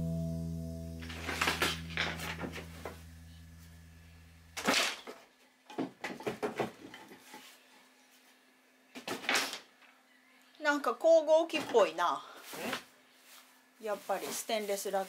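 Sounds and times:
background music: 0.0s - 4.6s.

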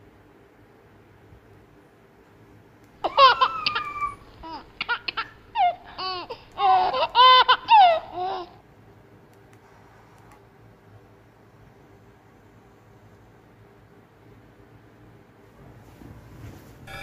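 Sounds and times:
kittens meowing: 3.0s - 4.8s.

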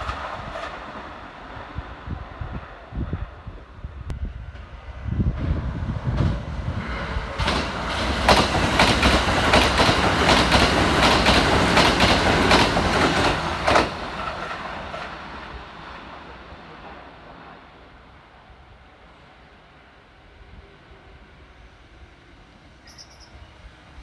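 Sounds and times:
train rumble: 0.0s - 24.0s
train wheels clacking over rail joints: 7.4s - 15.2s.

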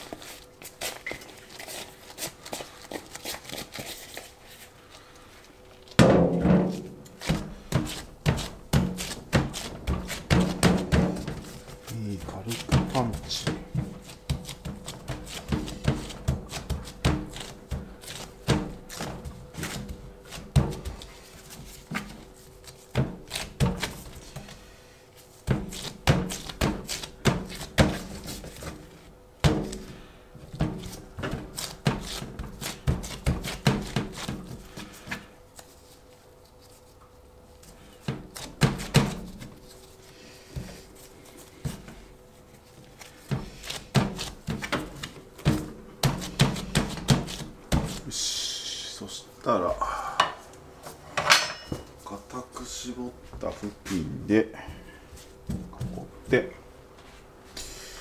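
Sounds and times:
hands kneading dough: 0.0s - 51.1s, 51.8s - 58.0s
dough thunks and taps: 6.0s - 21.1s, 25.4s - 34.6s, 43.2s - 48.1s.

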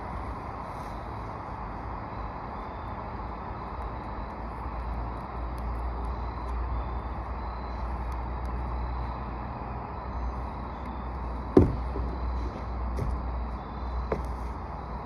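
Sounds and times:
low outdoor rumble: 0.0s - 15.0s
sharp knock: 11.6s - 12.0s.

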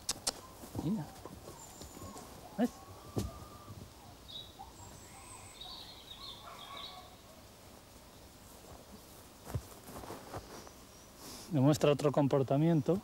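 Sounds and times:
small birds chirping: 0.0s - 9.3s.

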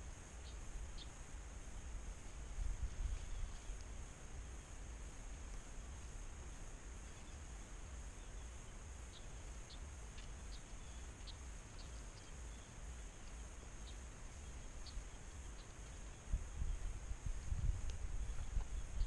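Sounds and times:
wind rumble on microphone: 0.0s - 8.4s, 13.8s - 19.0s.

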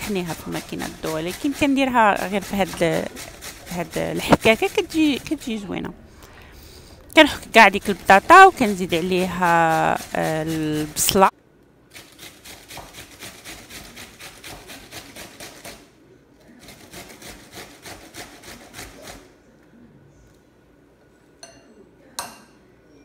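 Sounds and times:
potato grating on metal grater: 0.0s - 5.9s, 7.2s - 11.3s, 11.9s - 15.9s, 16.5s - 19.3s.

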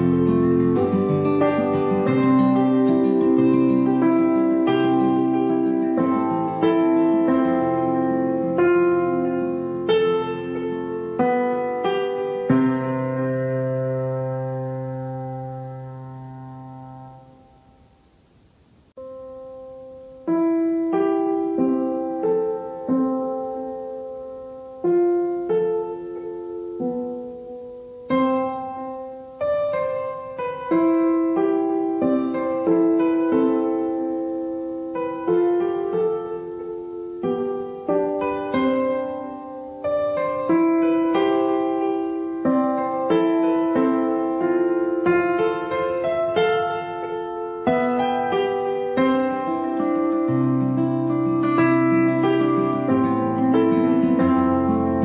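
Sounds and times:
slow piano music: 0.0s - 18.0s, 18.9s - 55.0s.

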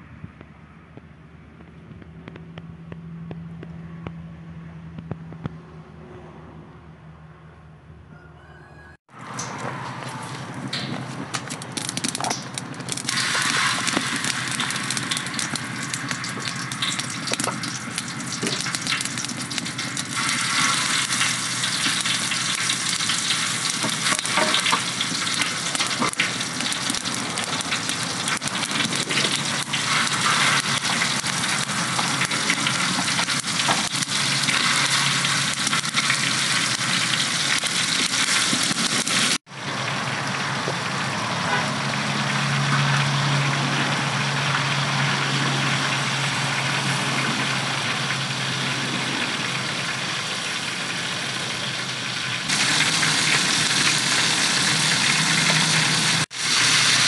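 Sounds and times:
burger patties sizzling in oil: 11.7s - 57.0s.

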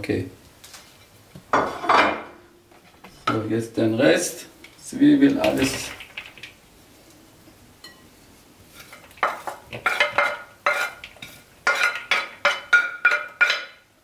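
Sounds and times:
wooden spoon scraping a plate: 8.7s - 13.8s.

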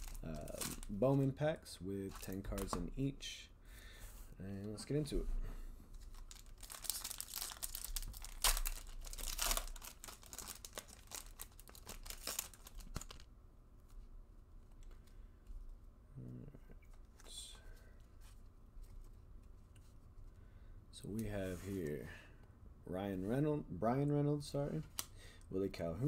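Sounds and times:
wrapper being torn and crinkled: 0.0s - 1.0s, 6.0s - 13.3s
cards rustling: 5.9s - 14.1s.

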